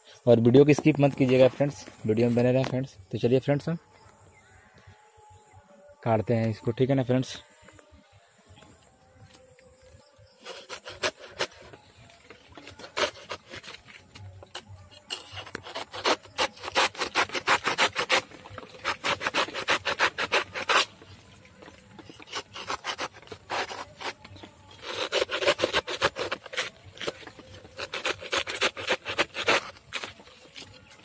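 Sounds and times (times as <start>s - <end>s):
blade sawing through plant stem: 10.4s - 11.8s, 12.5s - 21.1s, 21.9s - 30.9s.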